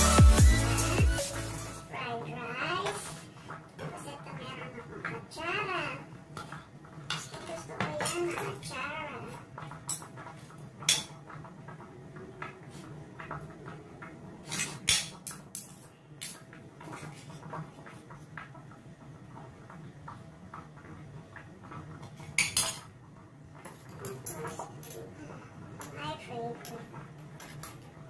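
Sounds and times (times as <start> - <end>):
cutlery scraping on a plate: 14.4 - 17.3.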